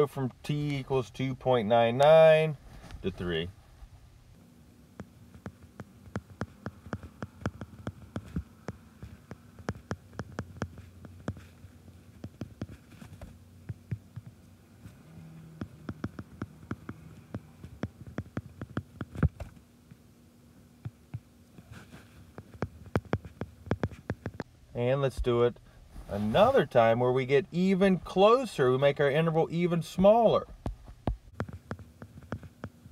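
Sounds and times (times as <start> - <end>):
low steady hum: 0.0 - 32.9
stylus tapping on glass screen: 5.4 - 11.4, 15.6 - 19.3.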